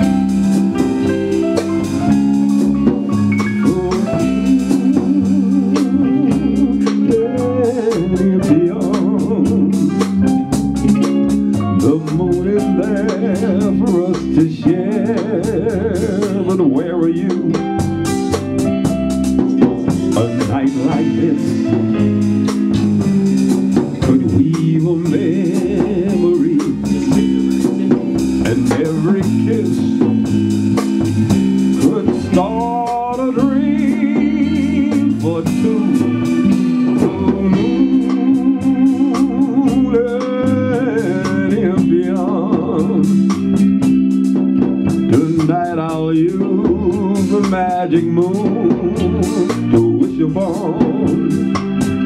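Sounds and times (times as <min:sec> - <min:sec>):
drum kit: 0:00.0 - 0:52.0
electric organ chords: 0:00.0 - 0:52.0
wavering lead melody: 0:00.0 - 0:52.0.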